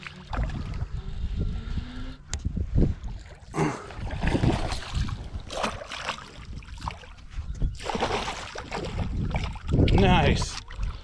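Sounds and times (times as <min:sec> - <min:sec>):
wind rumbling on microphone: 0:00.0 - 0:11.0
fish splashing in water: 0:07.8 - 0:09.7.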